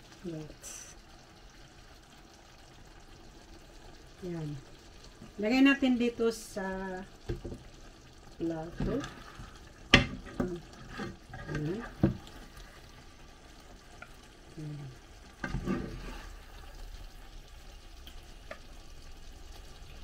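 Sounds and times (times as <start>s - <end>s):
sauce sizzling faintly: 0.0s - 20.0s
spatula scraping frying pan: 8.7s - 13.0s, 15.3s - 16.8s.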